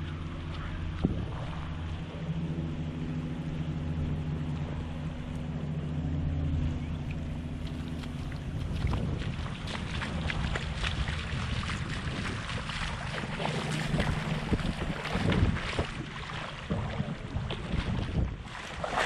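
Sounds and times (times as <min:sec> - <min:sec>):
motorboat engine humming: 0:00.0 - 0:19.0
small waves washing on shore: 0:07.1 - 0:19.0.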